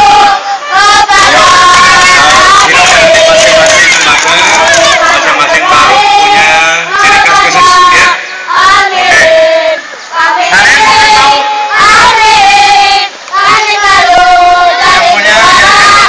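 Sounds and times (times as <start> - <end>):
children singing a cheer: 0.0 - 16.0.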